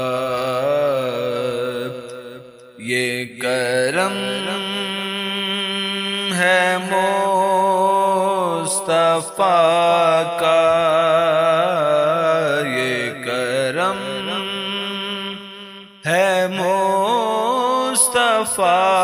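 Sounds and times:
person singing devotional hymn: 0.0 - 19.0.

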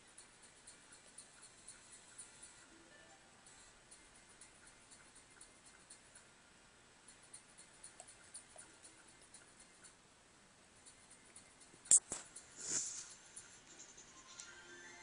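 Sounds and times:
faint room hiss: 0.0 - 15.0
small clicks and scratches: 10.8 - 14.5.

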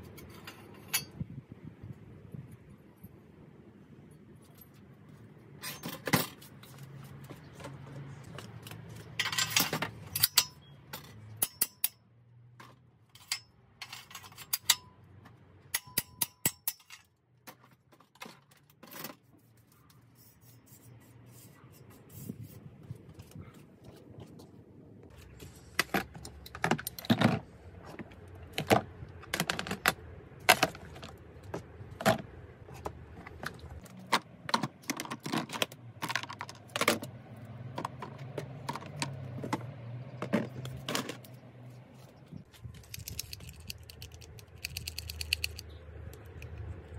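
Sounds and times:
metal parts clinking: 9.2 - 12.0, 13.1 - 15.0, 15.7 - 19.3, 42.7 - 46.6.

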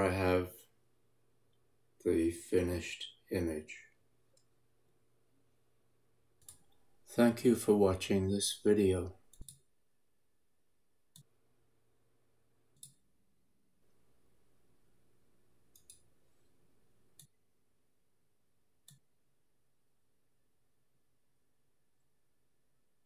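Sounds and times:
faint low hum: 0.0 - 23.0
faint computer mouse clicks: 6.4 - 6.8, 9.3 - 9.6, 11.1 - 11.3, 12.8 - 13.0, 15.7 - 16.1, 17.2 - 17.4.

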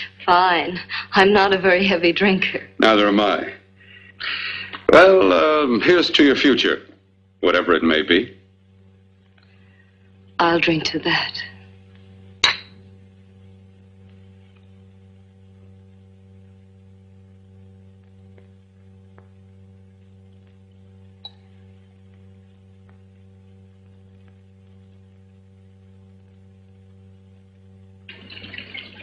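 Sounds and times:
low electrical hum: 0.0 - 29.0
faint ticks: 20.0 - 25.4.

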